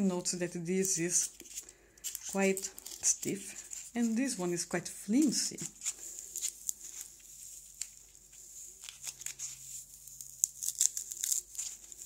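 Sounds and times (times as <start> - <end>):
packing peanut crinkling and crackling: 0.8 - 4.1, 5.6 - 12.0.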